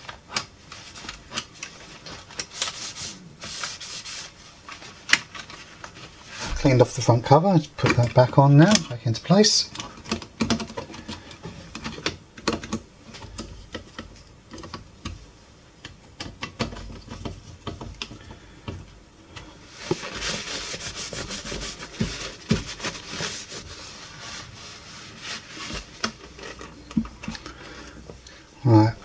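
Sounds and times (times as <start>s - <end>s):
paper towel wiping metal: 6.4s - 8.0s, 19.7s - 25.9s.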